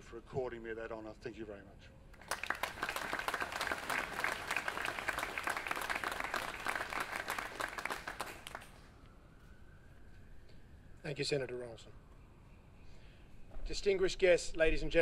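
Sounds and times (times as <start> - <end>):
audience applauding: 2.2 - 8.7.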